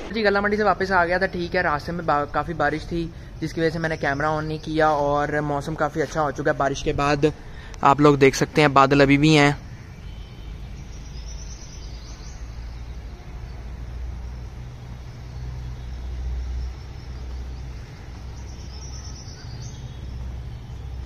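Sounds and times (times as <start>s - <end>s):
faint high chirping: 15.1s - 21.0s.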